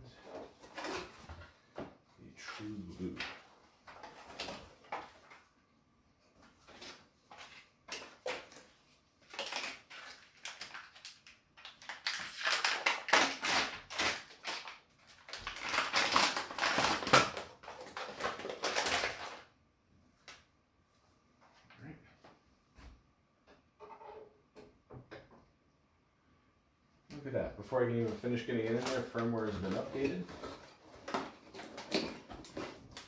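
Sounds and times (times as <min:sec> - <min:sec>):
plastic bag crinkling: 0:06.6 - 0:19.5, 0:28.2 - 0:33.0.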